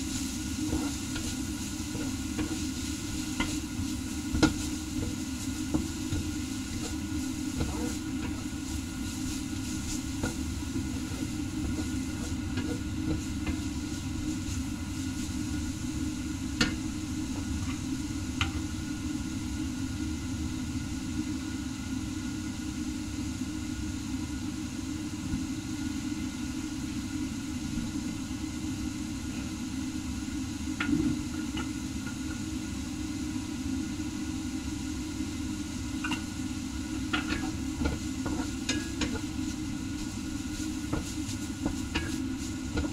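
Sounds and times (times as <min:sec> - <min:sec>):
onions sizzling in a wok: 0:00.0 - 0:42.9
wooden spatula knocking pan: 0:40.9 - 0:42.9.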